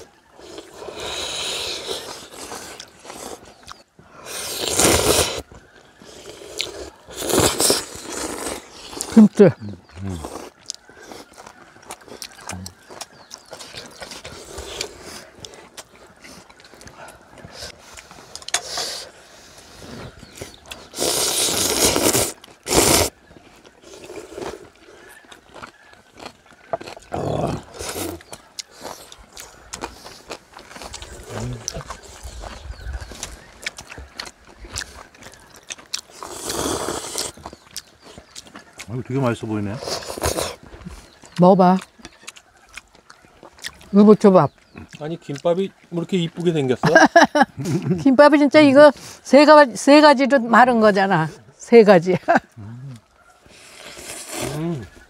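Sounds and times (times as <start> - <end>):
chewing: 0.0 - 49.6, 50.2 - 55.0
quiet eating sounds: 0.0 - 55.0
noodle slurping: 0.4 - 9.2, 20.7 - 23.1, 36.0 - 38.0, 39.8 - 41.0, 53.5 - 55.0
noodles being slurped: 4.2 - 5.5, 6.1 - 9.2, 20.7 - 32.6, 34.2 - 38.4, 53.5 - 55.0.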